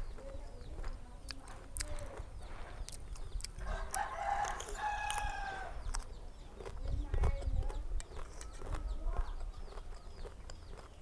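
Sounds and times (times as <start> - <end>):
crunchy chewing of mango: 0.0 - 11.0
rooster crowing: 3.6 - 5.8.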